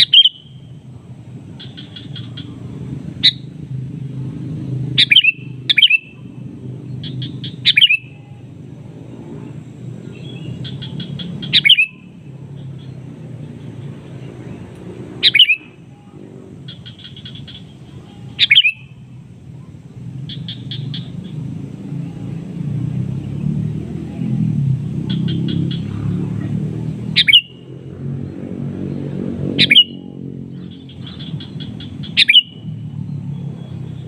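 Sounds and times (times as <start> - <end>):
bird calls sweeping downward: 0.0 - 0.7, 5.0 - 6.3, 6.9 - 8.4, 10.0 - 13.0, 15.2 - 18.9, 26.8 - 27.7, 28.9 - 34.0.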